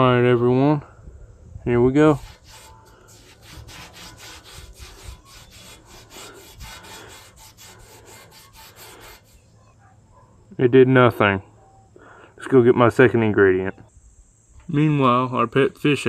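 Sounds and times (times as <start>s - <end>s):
cloth rubbing on metal pipe: 2.0s - 9.6s.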